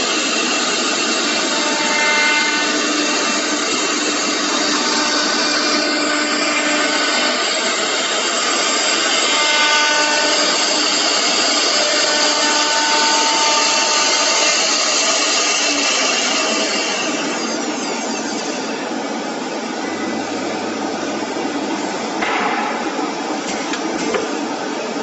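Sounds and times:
router spindle whirring and cutting: 0.0s - 18.9s.

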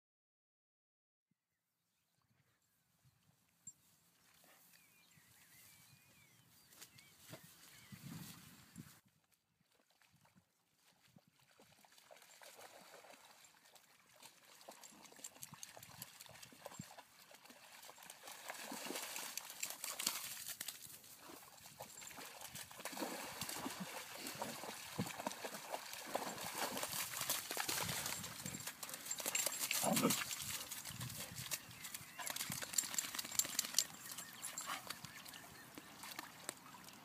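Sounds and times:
dogs splashing through puddles: 9.6s - 37.0s.

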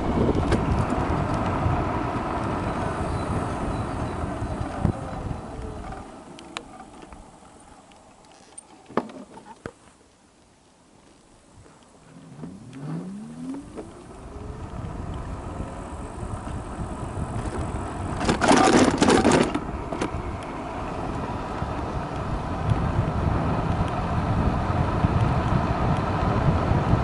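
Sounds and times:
wheels clattering over railway tracks: 0.0s - 9.5s, 17.3s - 22.5s
electric scooter motor whine: 0.0s - 9.7s, 12.0s - 27.0s
wind and road noise: 0.0s - 27.0s.

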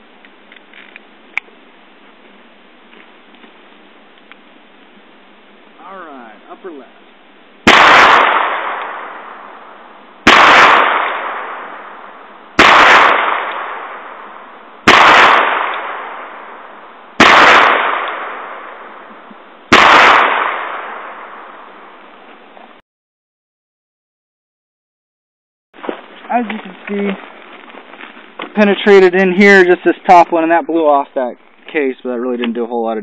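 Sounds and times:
revolver gunshots: 7.6s - 19.1s, 19.7s - 21.7s.

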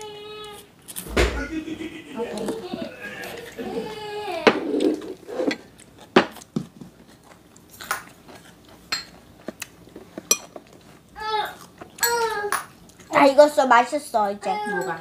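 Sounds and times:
chewing: 4.8s - 13.2s
spoon and chopsticks clinking bowls: 8.9s - 9.2s, 10.3s - 10.6s, 14.7s - 15.0s.

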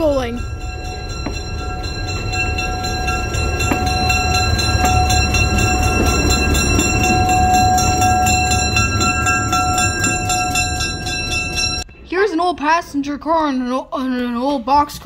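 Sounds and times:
diesel locomotive rumble: 0.0s - 12.0s.

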